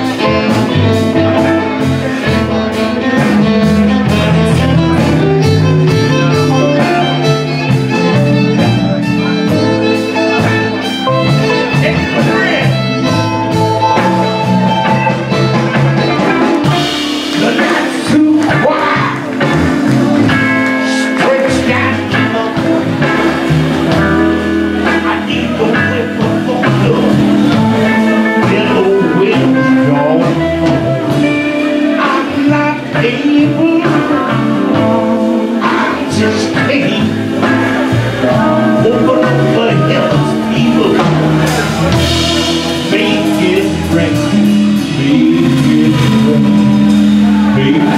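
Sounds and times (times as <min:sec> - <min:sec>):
man singing: 0:00.0 - 0:14.0, 0:14.7 - 0:47.9
bass: 0:00.0 - 0:47.9
drums: 0:00.0 - 0:47.9
electric guitars: 0:00.0 - 0:47.9
keyboard: 0:00.0 - 0:47.9
fiddle: 0:00.7 - 0:16.6.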